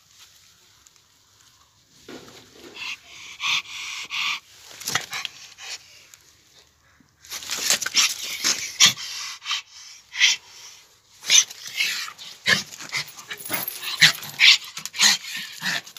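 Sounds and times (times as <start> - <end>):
dog panting and whining: 2.7 - 6.0, 11.3 - 15.9.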